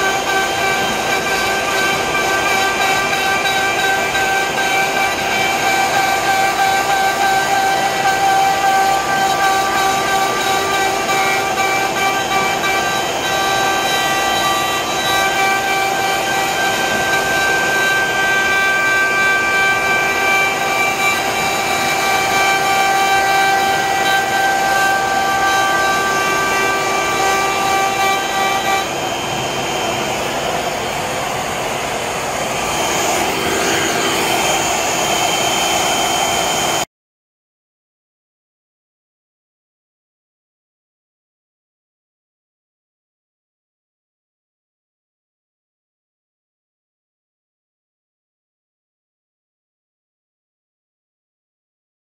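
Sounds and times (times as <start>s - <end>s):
router spindle whine: 0.0s - 36.9s
dust vacuum rushing: 28.8s - 36.8s.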